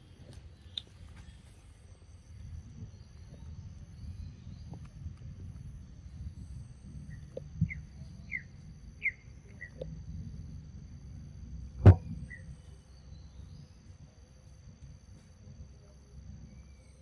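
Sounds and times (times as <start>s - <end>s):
small bird chirping: 0.0s - 10.0s, 12.2s - 14.0s
loud sharp smack: 11.8s - 12.0s.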